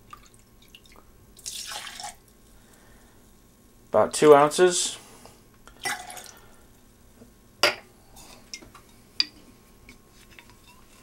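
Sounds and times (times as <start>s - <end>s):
liquid pouring into glass: 0.1s - 2.2s, 5.8s - 6.4s.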